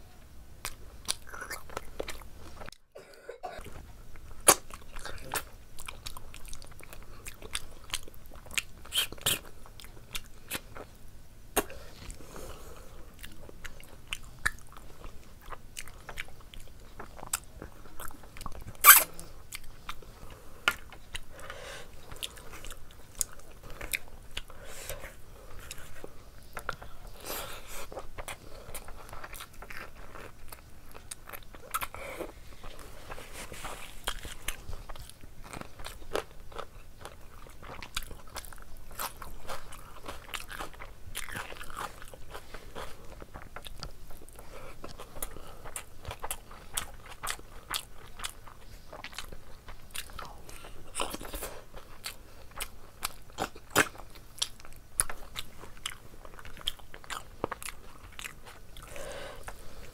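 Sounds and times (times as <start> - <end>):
person chewing and biting: 0.6 - 2.8, 3.6 - 10.9, 11.6 - 59.9.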